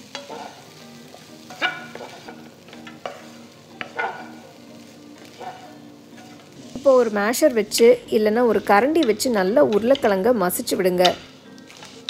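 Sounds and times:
spoon scraping a pan: 0.0 - 7.9, 11.0 - 12.0.

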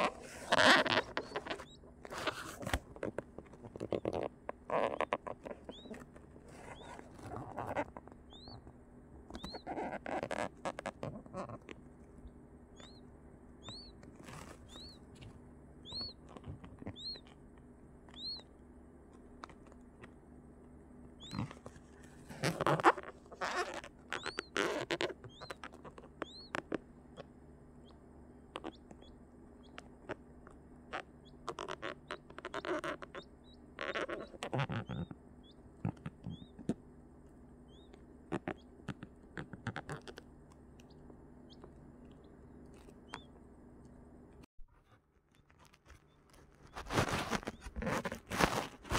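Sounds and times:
rustling on tissue paper: 0.0 - 3.0, 14.1 - 15.4, 45.5 - 48.9
quail chick peeping: 0.0 - 48.9.

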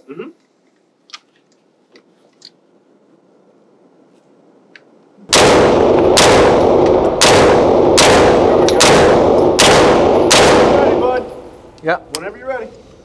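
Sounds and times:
gunshots echoing indoors: 5.3 - 11.7.

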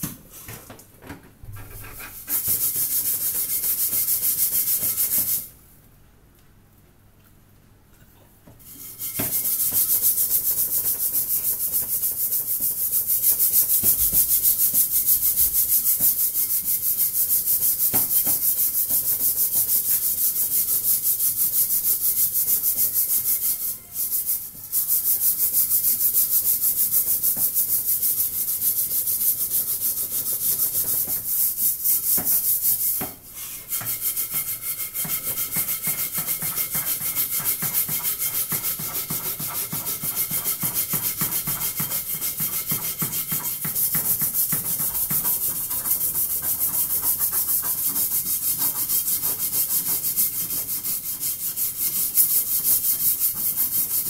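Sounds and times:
metal pot being scrubbed: 1.5 - 5.5, 8.6 - 54.0.

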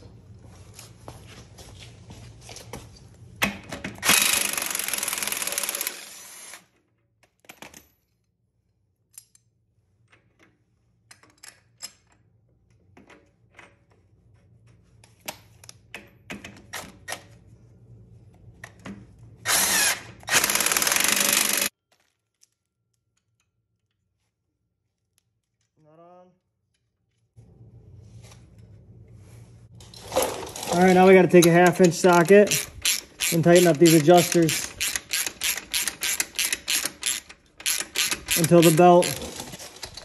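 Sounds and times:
power tool running: 4.0 - 6.6, 19.5 - 21.7
metallic clicks of tools: 31.4 - 39.2.

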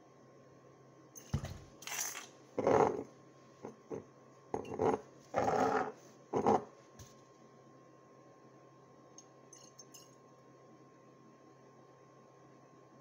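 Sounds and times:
glass clinking: 9.5 - 10.2.

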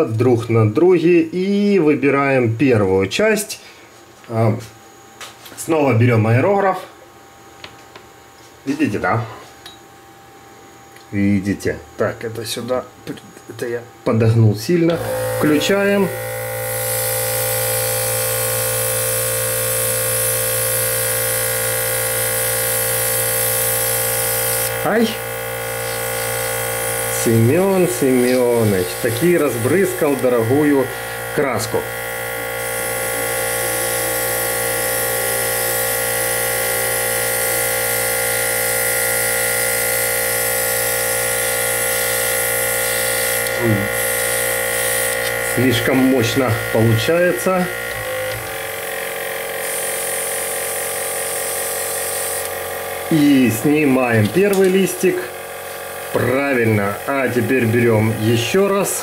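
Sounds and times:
airbrush compressor buzzing: 14.9 - 59.0
airbrush hissing: 15.0 - 58.5.

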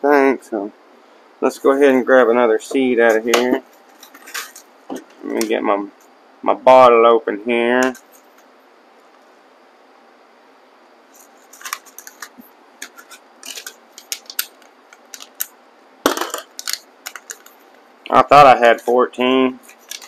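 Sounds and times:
seeds rattling in plastic bottle: 11.2 - 15.5, 16.1 - 17.6.

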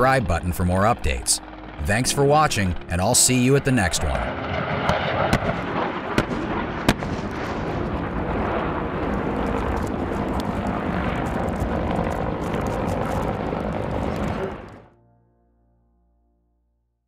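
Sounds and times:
sharp gunshots: 4.2 - 7.8
helicopter rotor noise: 7.8 - 14.9.

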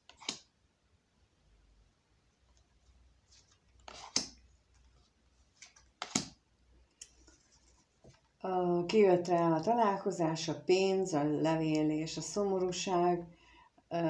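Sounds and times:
card rustling: 3.2 - 6.4
cards slapping on wooden table: 3.8 - 4.4, 5.6 - 6.4.

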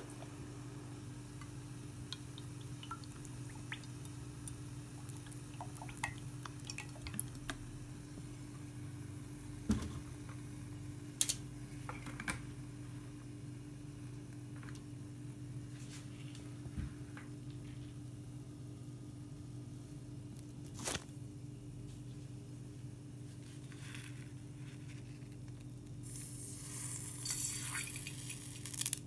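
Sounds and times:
steady low hum: 0.0 - 29.0
oil ticking in a frying pan: 1.4 - 7.6.

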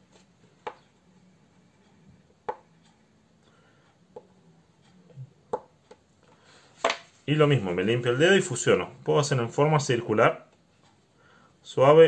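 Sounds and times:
pastel tapping on paper: 0.6 - 0.9, 2.4 - 2.7, 5.5 - 6.0.

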